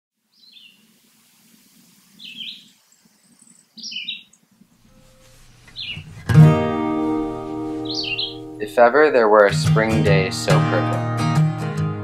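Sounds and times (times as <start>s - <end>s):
songbird singing: 0.2s - 9.0s.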